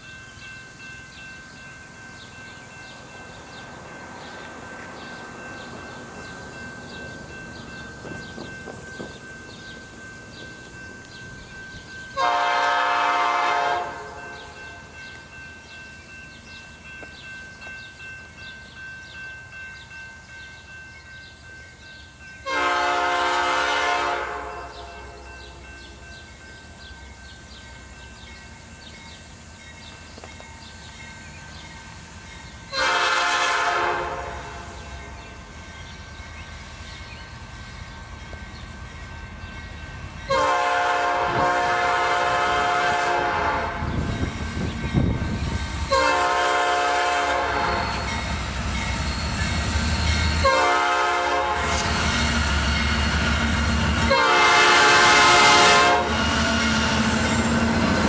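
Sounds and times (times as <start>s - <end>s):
train rumble: 0.0s - 58.0s
locomotive horn blasts: 12.2s - 14.6s, 22.4s - 25.2s, 32.7s - 34.9s, 40.3s - 44.1s, 45.9s - 48.1s, 50.4s - 51.9s, 54.0s - 56.3s.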